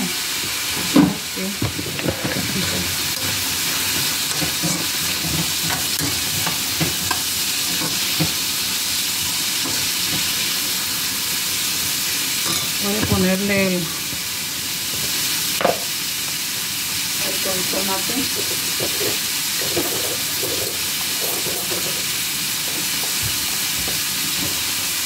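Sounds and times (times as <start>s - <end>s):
vegetables sizzling in a pan: 0.0s - 25.0s
spatula scraping and tapping pan: 1.6s - 8.5s, 9.6s - 10.5s, 18.3s - 24.7s.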